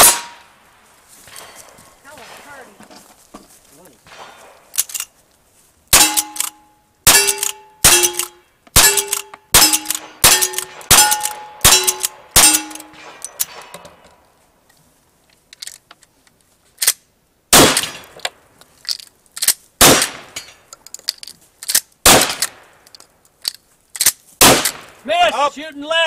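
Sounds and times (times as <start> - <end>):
shotgun blast: 0.0 - 0.4, 17.5 - 18.1, 19.8 - 20.4, 22.0 - 22.6, 24.4 - 24.9
rifle shots: 0.0 - 0.5, 1.3 - 2.8, 4.0 - 4.7, 5.9 - 13.8, 17.5 - 18.2, 19.8 - 20.4, 22.0 - 22.8, 24.4 - 25.0
steel target ringing: 6.0 - 13.1.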